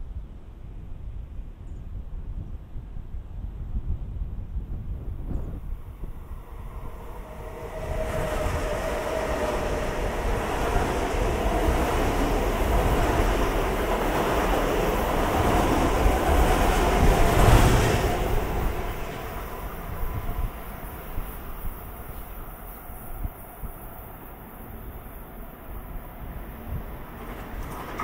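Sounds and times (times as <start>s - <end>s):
train wheels rumbling on rail: 5.0s - 28.0s.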